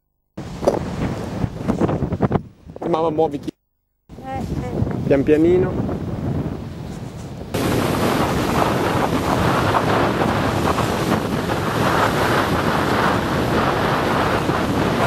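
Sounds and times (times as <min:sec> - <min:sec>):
wind buffeting microphone: 0:00.4 - 0:15.0
ocean surf: 0:06.6 - 0:15.0.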